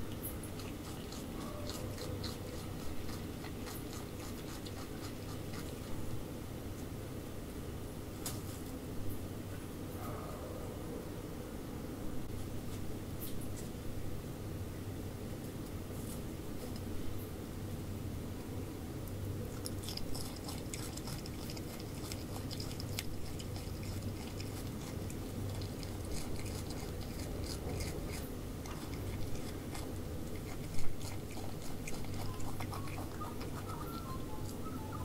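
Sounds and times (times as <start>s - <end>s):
animals chewing crunching apple: 0.0s - 6.2s, 19.4s - 35.0s.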